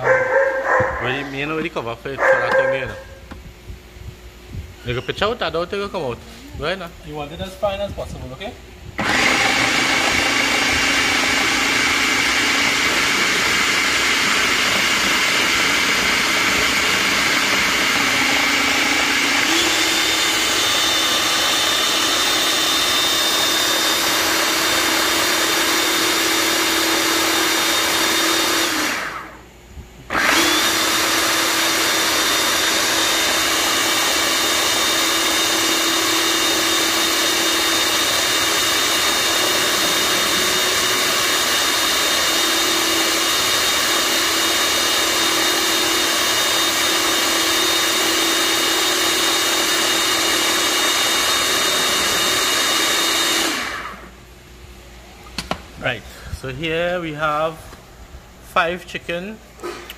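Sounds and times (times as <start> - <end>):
food processor motor whine: 9.0 - 29.5, 30.1 - 54.3.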